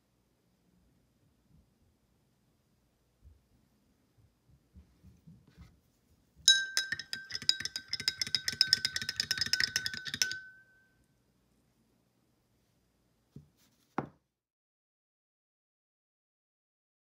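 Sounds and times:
spoon clinking in glass: 6.5s - 10.8s
glass ringing: 6.5s - 11.0s.

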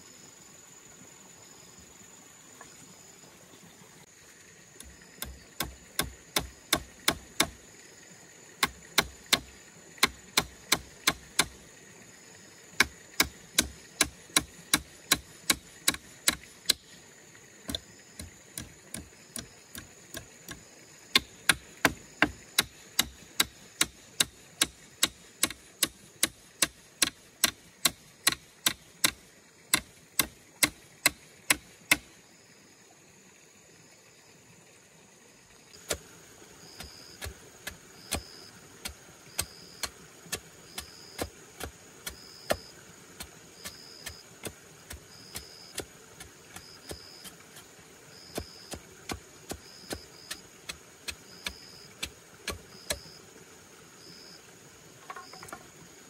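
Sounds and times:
hammer striking wood: 5.2s - 7.6s, 8.6s - 11.6s, 12.8s - 16.8s, 21.2s - 32.0s.

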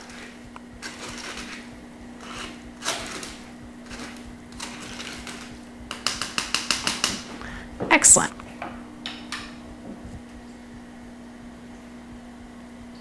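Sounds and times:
wooden spoon scraping strainer: 0.0s - 7.3s
faint steady hum: 0.0s - 13.0s.

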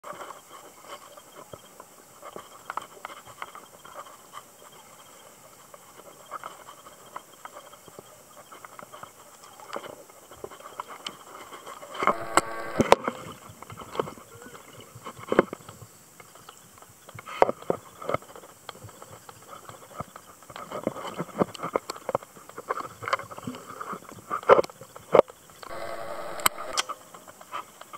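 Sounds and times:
muffled underwater clicks and crackles: 0.0s - 27.9s
brief hum: 12.0s - 13.3s, 25.7s - 27.0s.

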